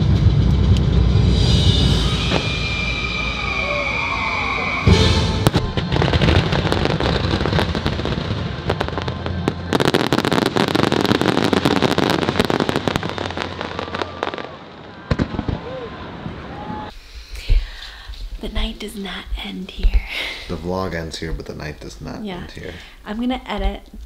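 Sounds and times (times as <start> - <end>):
music playing: 0.0 - 7.6
firework boom: 0.0 - 16.8
fireworks crackling: 0.0 - 23.8.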